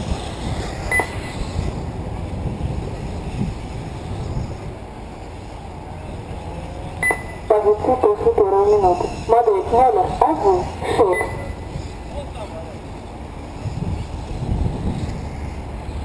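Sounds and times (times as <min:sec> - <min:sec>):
wind buffeting microphone: 0:00.0 - 0:16.0
short electronic beeps: 0:00.9 - 0:01.3, 0:07.0 - 0:08.0, 0:10.8 - 0:11.7.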